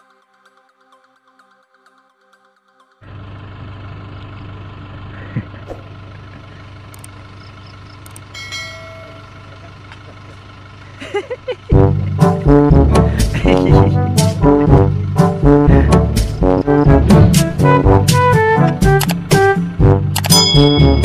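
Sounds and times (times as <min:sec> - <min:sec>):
diesel engine idling: 0:03.0 - 0:20.7
light clicks: 0:06.9 - 0:07.2
short chiming tone: 0:08.4 - 0:09.5.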